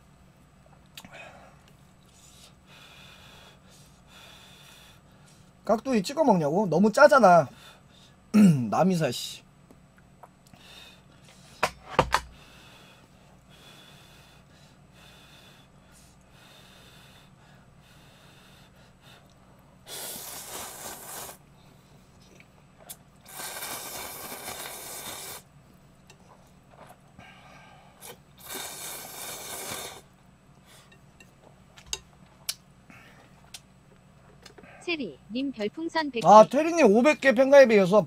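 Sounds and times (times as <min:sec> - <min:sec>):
person slurping noodles: 0:19.9 - 0:21.4, 0:23.3 - 0:25.5, 0:28.0 - 0:30.1.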